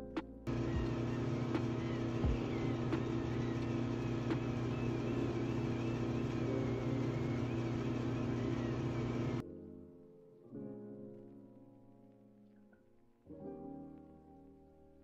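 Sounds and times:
electric facial brush humming: 0.5 - 9.4.

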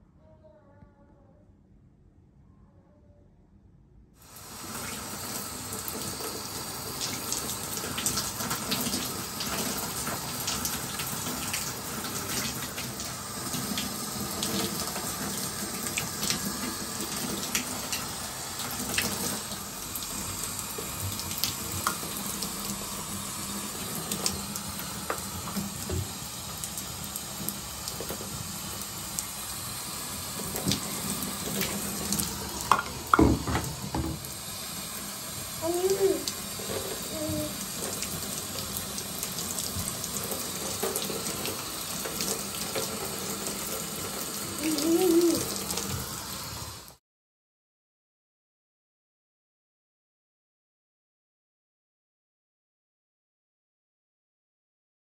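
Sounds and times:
shower spraying water: 4.2 - 47.0
drips and splashes: 4.4 - 46.5.

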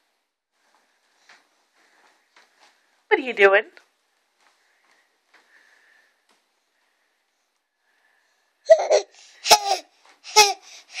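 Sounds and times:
baby laughing: 8.6 - 11.0.

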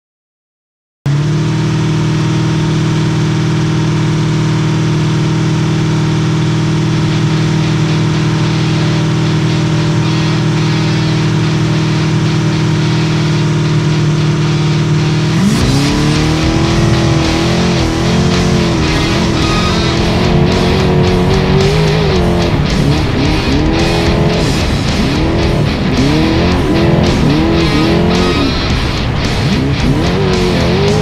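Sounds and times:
race car engine idling and revving: 1.1 - 31.0.

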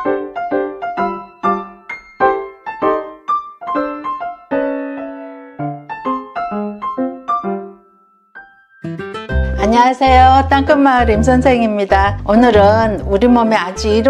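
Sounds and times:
light piano tune: 0.0 - 14.0.

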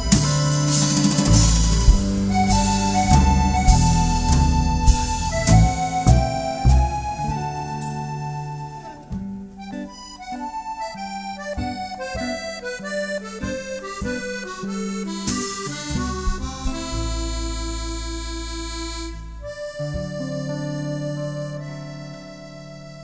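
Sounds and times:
drums and bass: 0.0 - 9.5, 13.2 - 20.2
accordion melody: 0.0 - 23.0.

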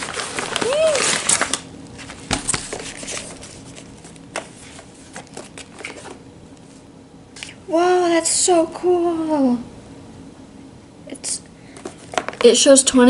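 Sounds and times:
paper and cardboard rustling: 0.0 - 6.2.

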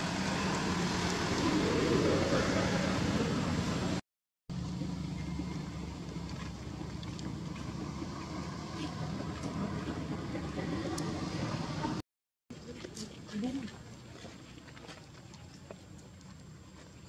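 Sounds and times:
engine running: 0.0 - 12.0.

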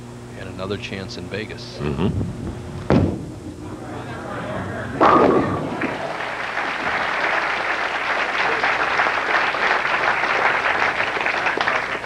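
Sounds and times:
bowling pins crashing: 2.4 - 9.2
audience applauding: 4.0 - 12.0.

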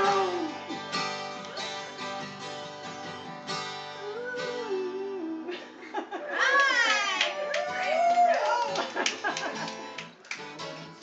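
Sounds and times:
acoustic guitar strumming chords: 0.0 - 5.3.

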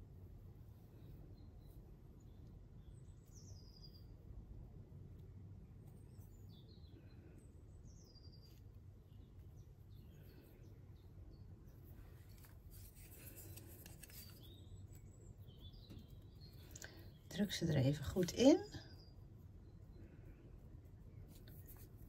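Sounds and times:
small birds chirping: 0.0 - 22.0
scratchy rustles of potting compost: 8.1 - 22.0.

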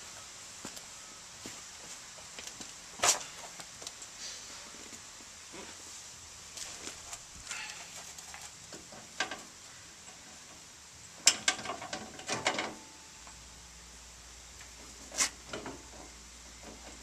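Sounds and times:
metal suspension strut clanking: 11.2 - 12.9.

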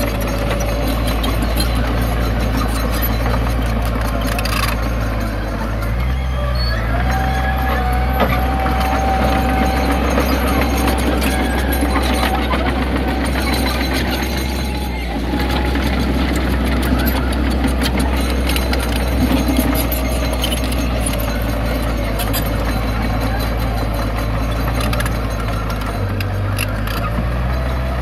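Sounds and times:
diesel machinery engine running: 0.0 - 28.0
rock and metal clanking: 8.0 - 28.0.

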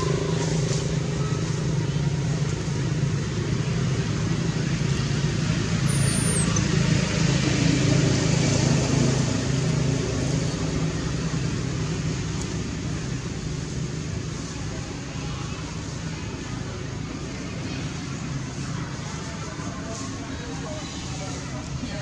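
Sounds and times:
vehicle engine rumble: 0.0 - 22.0.

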